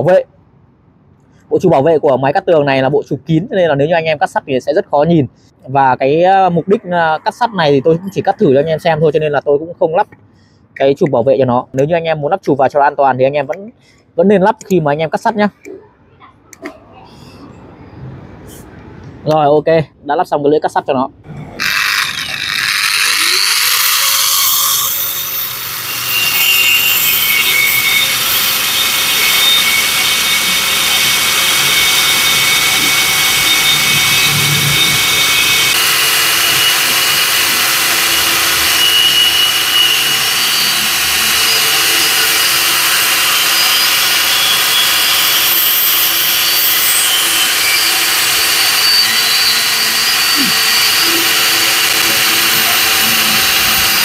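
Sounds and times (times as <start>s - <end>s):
abrasive disc cutting steel: 21.3s - 54.0s.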